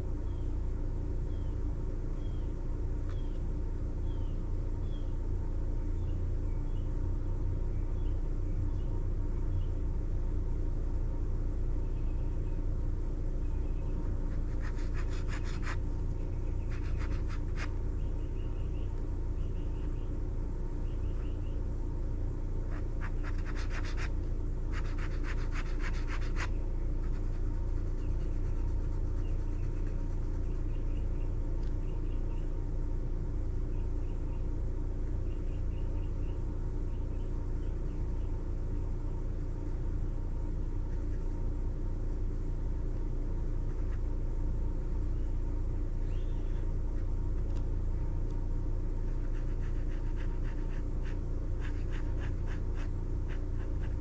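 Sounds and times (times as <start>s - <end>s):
steady low rumble: 0.0s - 54.0s
pen scratching on paper: 14.4s - 15.8s, 16.7s - 17.7s, 22.7s - 24.1s, 24.7s - 30.3s, 49.2s - 54.0s.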